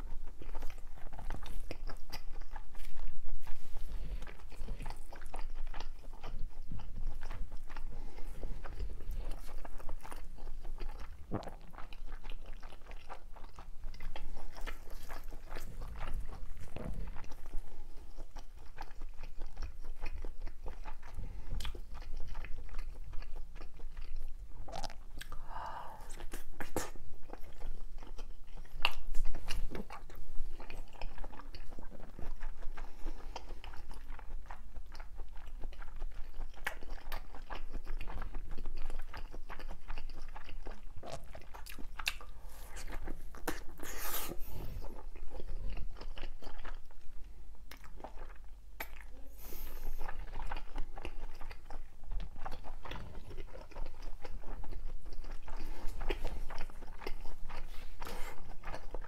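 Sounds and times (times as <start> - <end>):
wet mouth clicks: 26.1 - 27.0, 48.8 - 49.2
person biting and chewing: 39.1 - 46.9, 47.7 - 51.7.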